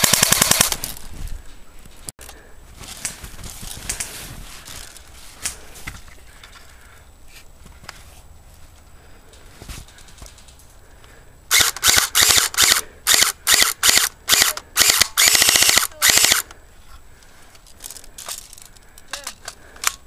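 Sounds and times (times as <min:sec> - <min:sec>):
airsoft rifle firing bursts: 0:00.0 - 0:00.9, 0:11.5 - 0:16.4.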